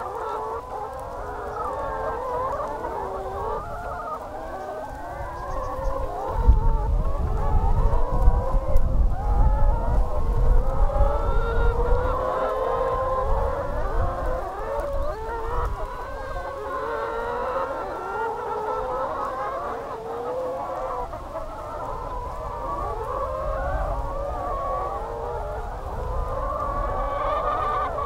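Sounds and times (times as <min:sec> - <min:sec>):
hens clucking and calling: 0:00.0 - 0:28.0.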